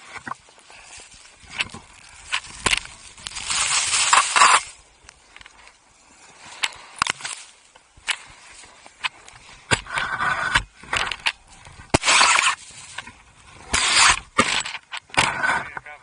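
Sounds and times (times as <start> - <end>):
skis sliding through snow: 0.7 - 5.0.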